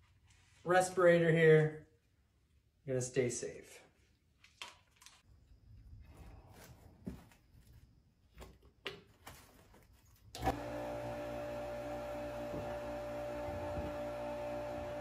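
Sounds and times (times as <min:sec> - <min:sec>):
electric pump humming: 0:10.4 - 0:15.0.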